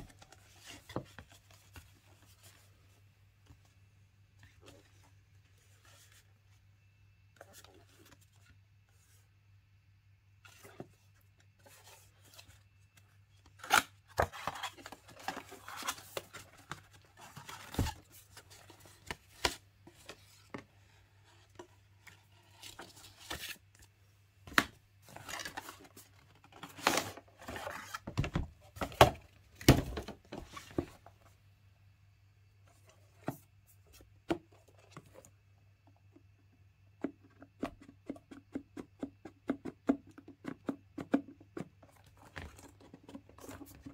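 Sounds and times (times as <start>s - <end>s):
cardboard and paper rustling: 0.0s - 6.6s, 10.4s - 31.3s, 41.6s - 43.9s.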